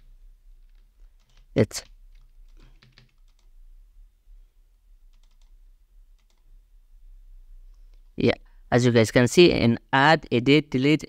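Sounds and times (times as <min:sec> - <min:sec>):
computer keys and mouse clicking: 0:00.6 - 0:03.5, 0:05.1 - 0:06.5.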